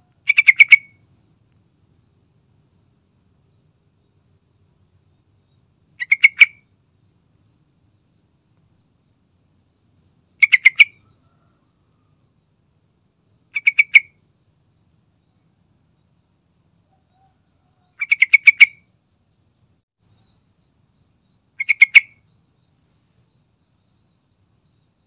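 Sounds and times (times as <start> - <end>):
bird rapid chirps: 0.3 - 1.0, 6.0 - 6.7, 10.2 - 11.1, 13.5 - 14.2, 18.0 - 19.0, 21.5 - 22.4.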